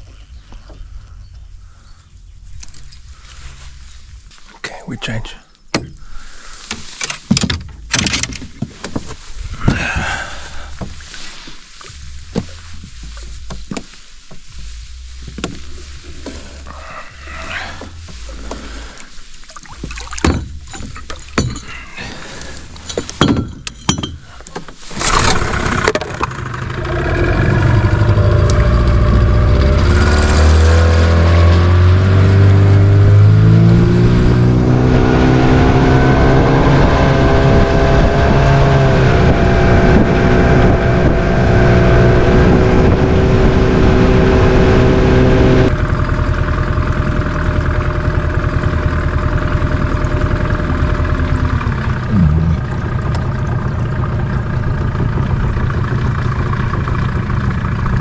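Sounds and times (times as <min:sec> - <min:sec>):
outboard motor running: 0:07.4 - 0:58.0
gear knocking in a boat: 0:19.5 - 0:26.5.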